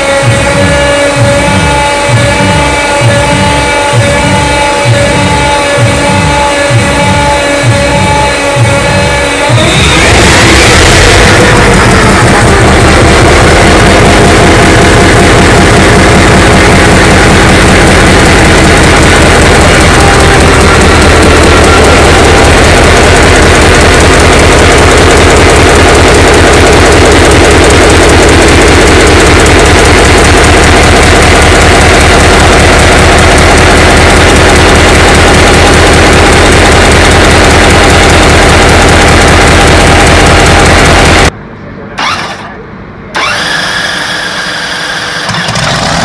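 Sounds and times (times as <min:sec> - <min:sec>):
diesel engine running: 0:00.0 - 0:46.0.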